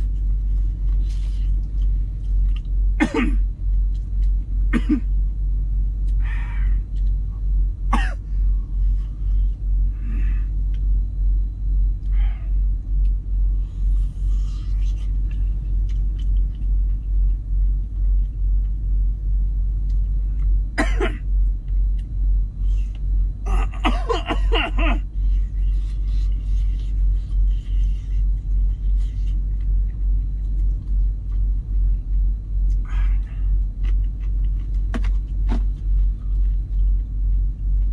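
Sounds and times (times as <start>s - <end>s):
person coughing: 3.0s - 3.4s, 4.7s - 5.1s, 7.9s - 8.3s, 20.8s - 21.2s, 23.5s - 25.1s.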